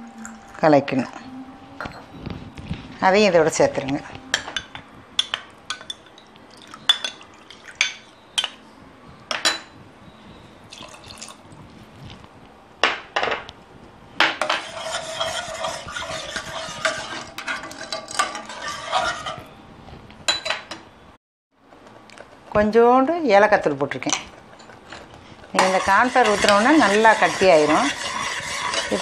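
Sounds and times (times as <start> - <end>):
spoon stirring and scraping: 1.8 - 8.6, 14.4 - 19.6, 23.9 - 29.0.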